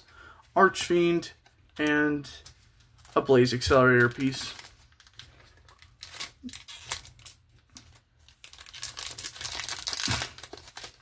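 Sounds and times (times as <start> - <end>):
foil wrapper tearing and crinkling: 3.0 - 11.0.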